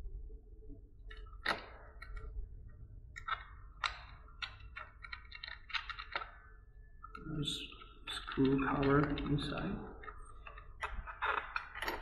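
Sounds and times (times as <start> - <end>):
small sharp metal clicks: 3.1 - 6.4.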